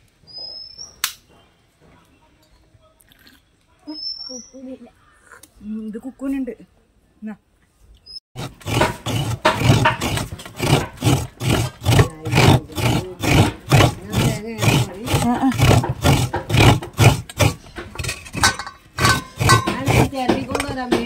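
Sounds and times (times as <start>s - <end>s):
coconut scraped on grater: 8.4s - 21.0s.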